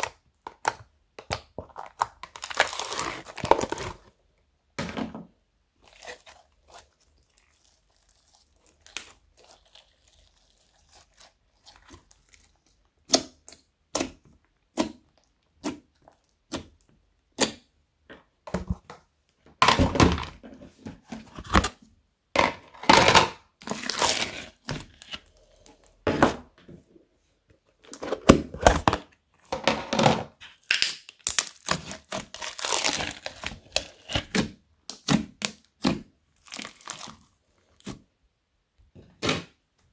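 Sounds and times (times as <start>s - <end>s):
slime popping and crackling: 0.0s - 4.0s, 5.8s - 17.7s, 30.6s - 37.3s
slime squishing: 0.0s - 4.2s, 5.7s - 17.7s, 30.5s - 38.2s.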